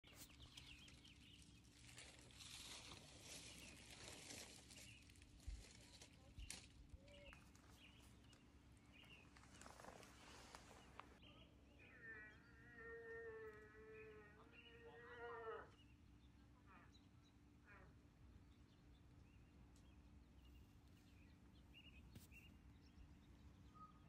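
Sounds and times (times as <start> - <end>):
soft rustling: 0.0 - 11.2, 21.8 - 22.7
faint bird chirps: 0.0 - 24.0.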